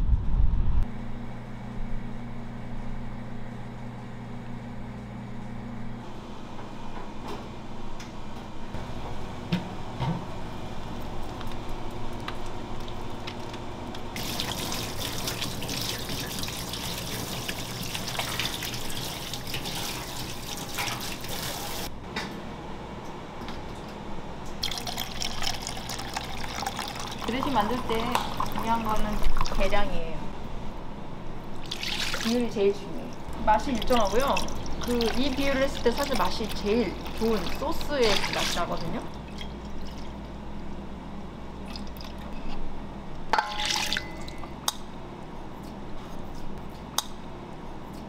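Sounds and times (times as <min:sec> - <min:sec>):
tap water running onto hands: 0:14.2 - 0:21.9, 0:33.3 - 0:39.1.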